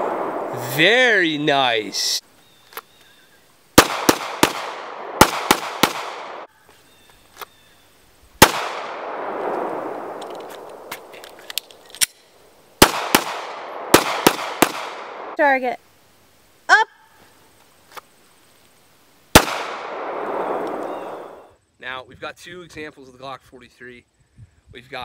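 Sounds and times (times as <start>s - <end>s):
pistol shots echoing: 3.8s - 6.5s, 8.4s - 10.9s, 12.8s - 15.4s, 19.4s - 21.4s.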